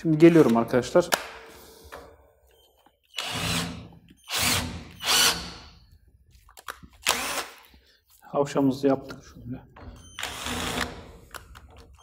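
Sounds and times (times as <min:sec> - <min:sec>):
power drill cutting in bursts: 0:03.2 - 0:05.7, 0:07.1 - 0:07.6, 0:10.2 - 0:11.0.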